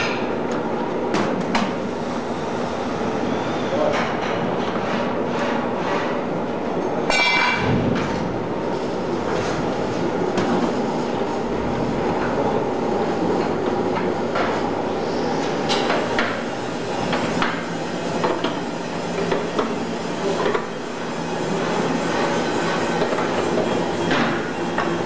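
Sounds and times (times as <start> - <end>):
sharp knocks and clanks: 7.1 - 8.4.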